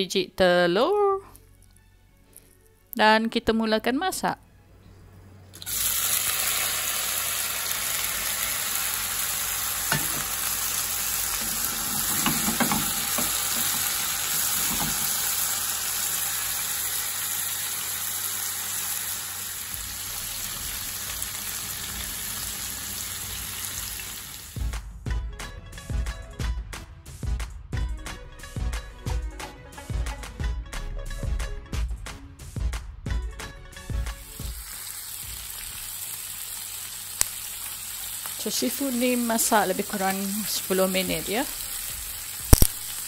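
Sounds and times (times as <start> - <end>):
seafood sizzling in a pan: 5.6 - 24.6, 34.2 - 43.0.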